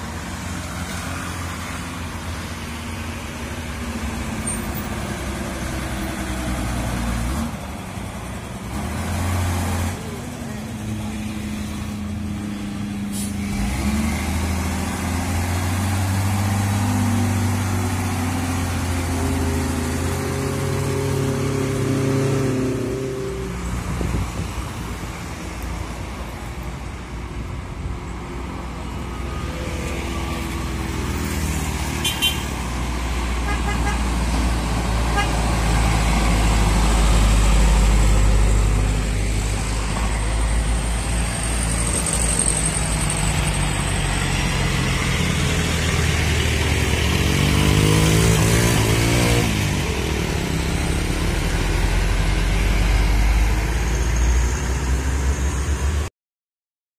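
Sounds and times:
trucks and motorcycles climbing hill: 0.0s - 56.1s
engine revving up: 13.1s - 23.3s, 34.6s - 56.1s.

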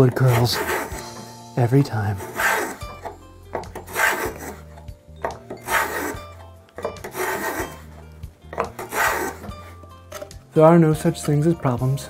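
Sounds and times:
chisel scraping wood: 0.0s - 10.5s.

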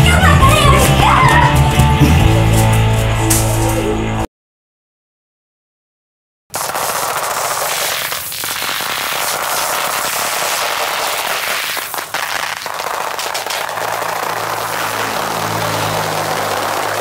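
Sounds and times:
firecrackers cracking: 6.5s - 17.0s.

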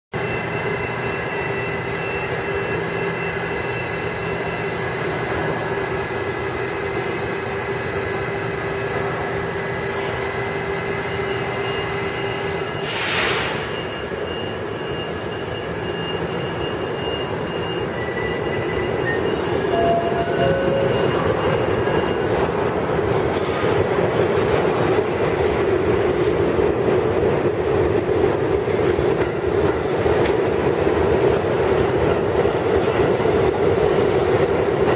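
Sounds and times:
subway train electrical hum: 0.2s - 34.9s
air hiss: 12.8s - 13.6s.

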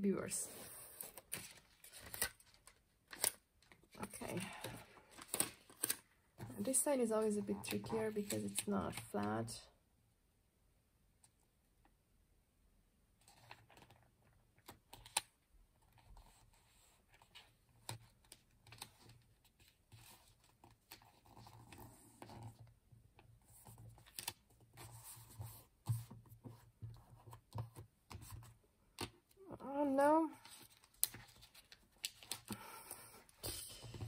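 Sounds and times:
paper rustling and crinkling: 0.8s - 9.2s, 30.4s - 34.0s.

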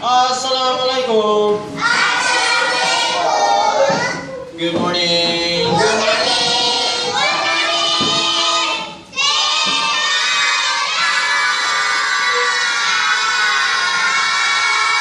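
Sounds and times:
children answering in chorus: 1.8s - 4.5s, 5.8s - 15.0s.

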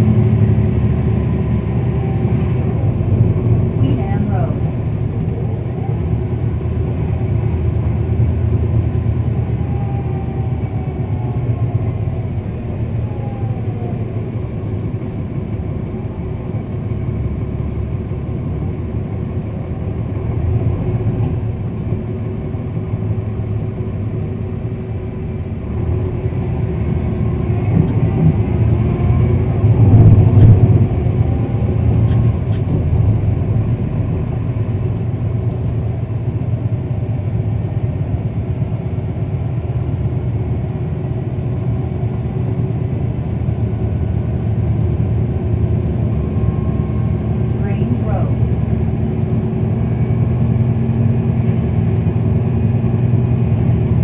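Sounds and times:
bus engine from inside: 0.0s - 54.0s.

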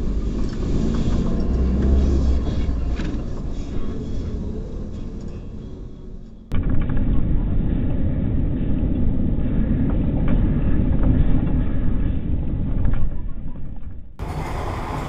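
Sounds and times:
car engine and road noise: 0.0s - 6.9s, 14.2s - 15.0s.

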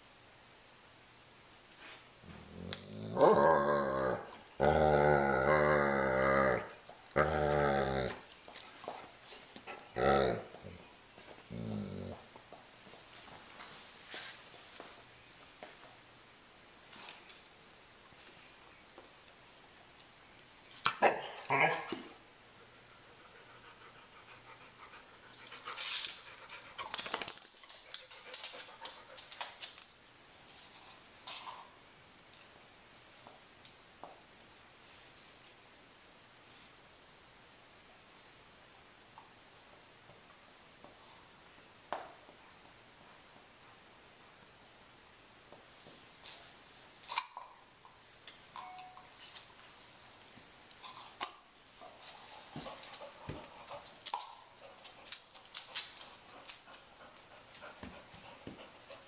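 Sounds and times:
dog panting: 22.8s - 27.0s, 52.1s - 59.0s
puppy clicks and scuffs on floor: 25.3s - 35.6s, 45.4s - 59.0s
dog claws clicking on wood floor: 25.6s - 30.0s, 52.6s - 58.7s.

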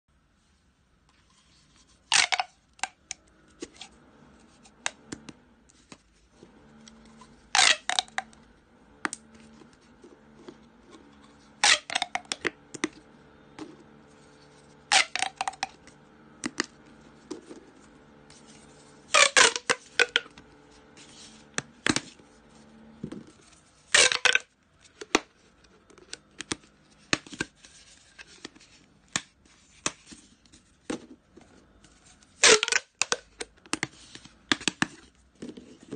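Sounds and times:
plastic tubes crackling clicks: 2.1s - 3.7s, 6.7s - 10.6s, 11.6s - 13.7s, 14.8s - 18.4s, 19.1s - 20.5s, 23.9s - 27.5s, 32.4s - 35.9s.

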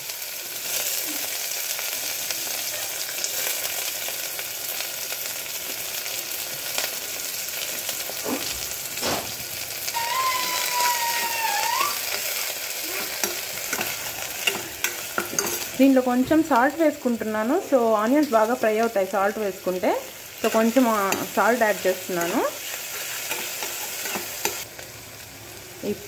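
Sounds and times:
onions sizzling in hot oil: 0.0s - 26.0s
steel spoon scraping pot: 13.0s - 15.8s, 22.2s - 24.6s.

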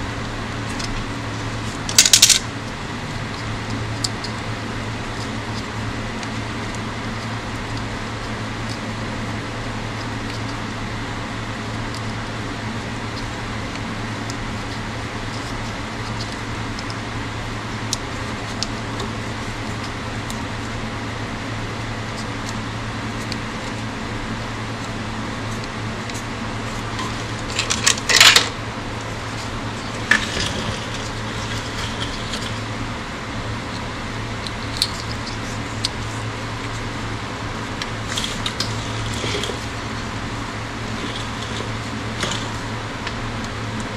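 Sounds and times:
steady low hum: 0.0s - 43.9s
metallic clatter: 27.0s - 28.6s.

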